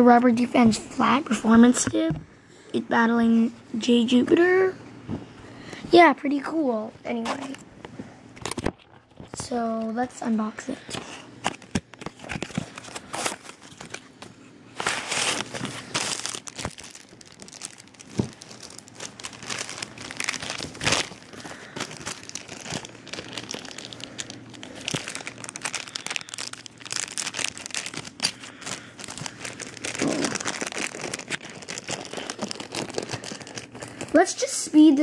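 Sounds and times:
plastic bags crinkling: 0:11.4 - 0:14.2, 0:14.8 - 0:34.2.

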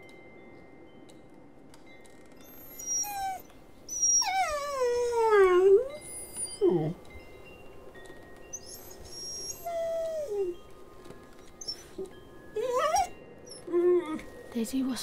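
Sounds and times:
dog whimpering: 0:02.4 - 0:07.0, 0:08.5 - 0:10.6, 0:11.6 - 0:14.4.

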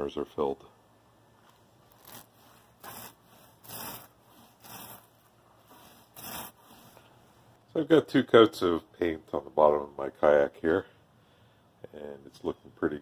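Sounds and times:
paint roller swishing: 0:01.8 - 0:07.5.

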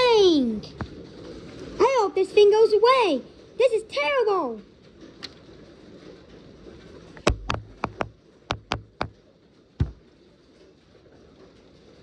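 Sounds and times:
hailstones knocking on house: 0:00.0 - 0:12.0.

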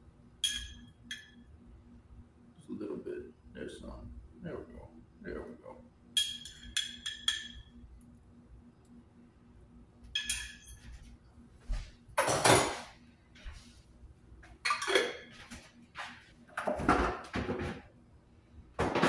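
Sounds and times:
metal fork clinking on glass jar: 0:06.2 - 0:07.7, 0:10.2 - 0:10.8.

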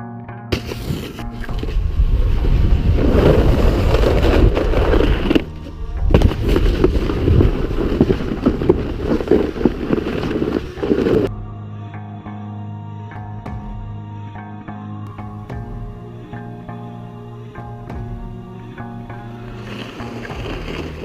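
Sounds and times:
plastic sled scraping over snow: 0:00.5 - 0:11.3, 0:19.1 - 0:21.0
sled hard hit: 0:00.5 - 0:11.3
wind buffeting microphone: 0:01.2 - 0:11.3.

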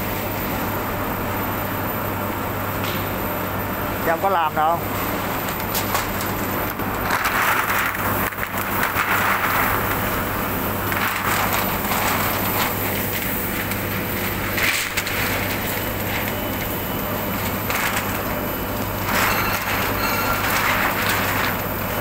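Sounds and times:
machine hum: 0:00.0 - 0:22.0
plastic film crackling: 0:05.0 - 0:22.0.

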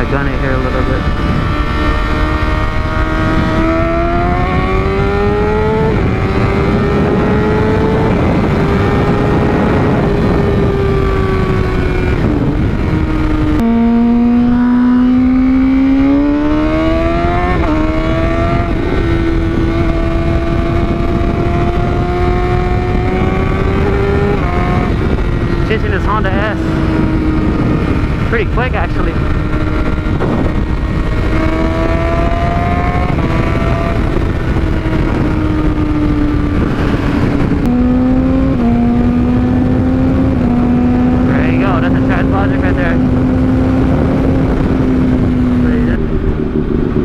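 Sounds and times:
motorcycle engine accelerating: 0:00.0 - 0:47.0
wind rush: 0:00.0 - 0:47.0.

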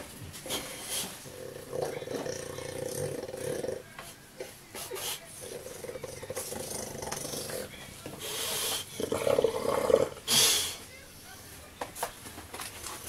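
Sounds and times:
dog grumbling and growling: 0:00.5 - 0:03.9, 0:05.3 - 0:07.7, 0:08.8 - 0:10.5
dog breathy huff: 0:08.2 - 0:09.1, 0:10.2 - 0:10.8.

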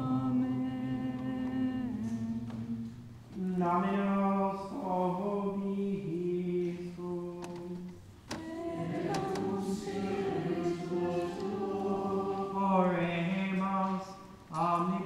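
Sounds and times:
voices singing plainchant: 0:06.6 - 0:15.0.

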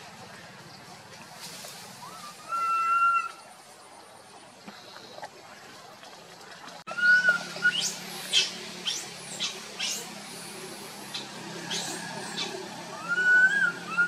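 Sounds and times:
whistle-like animal cry: 0:13.0 - 0:14.0.

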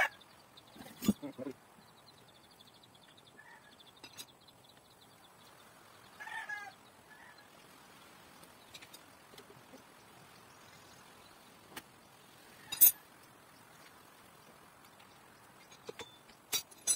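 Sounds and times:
animal calls: 0:00.0 - 0:00.2.

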